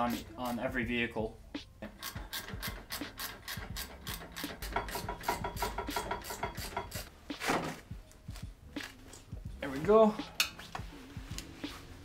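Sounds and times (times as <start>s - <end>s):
ratchet wrench clicking rapidly: 2.0s - 7.1s.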